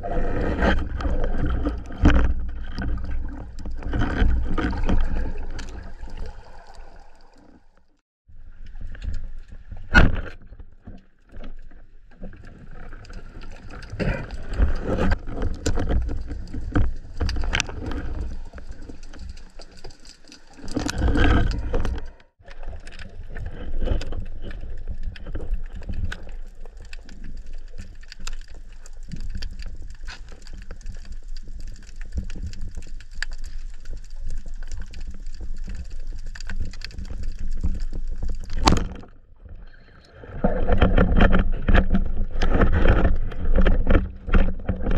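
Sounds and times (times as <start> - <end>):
water bubbling against camera housing: 0.0 - 7.9, 35.8 - 44.9
water rushing burst: 4.7 - 7.8.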